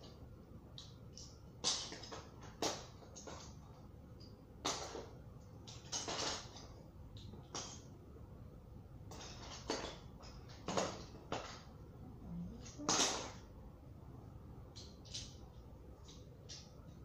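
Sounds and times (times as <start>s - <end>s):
plastic toy pieces clattering: 4.6s - 7.8s, 9.1s - 11.7s, 12.6s - 13.4s, 14.7s - 15.4s.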